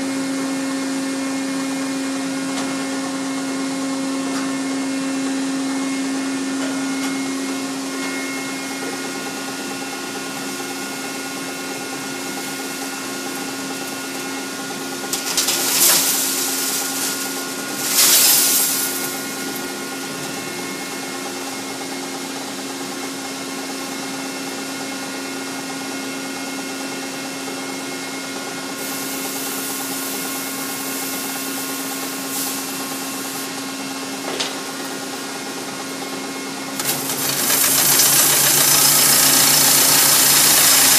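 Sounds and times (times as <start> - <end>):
machine humming: 0.0 - 23.8, 28.8 - 40.9.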